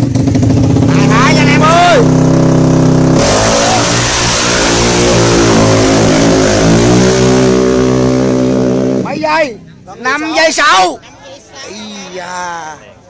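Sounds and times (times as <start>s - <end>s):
motorcycle engine at full throttle: 0.0s - 9.2s.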